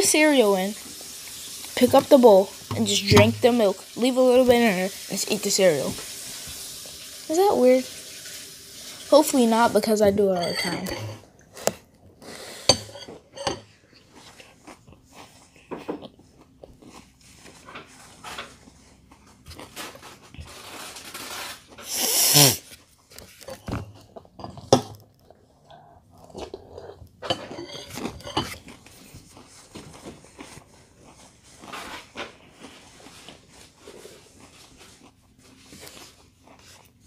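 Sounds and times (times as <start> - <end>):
metal spoon clinking glass bowl: 10.4 - 11.2, 12.7 - 13.6
chewing and crunching cereal: 13.7 - 37.0.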